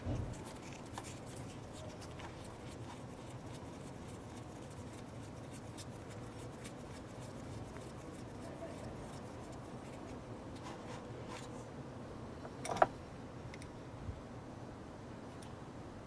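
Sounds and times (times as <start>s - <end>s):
low background hum: 0.0s - 16.0s.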